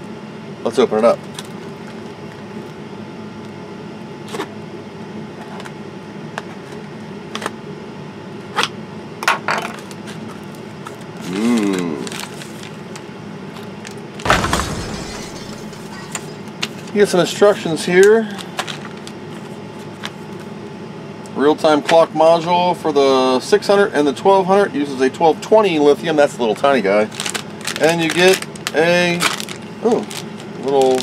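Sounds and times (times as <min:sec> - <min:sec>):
steady low hum: 0:09.9 - 0:26.5
plastic bag rustling: 0:12.0 - 0:13.0, 0:27.1 - 0:31.0.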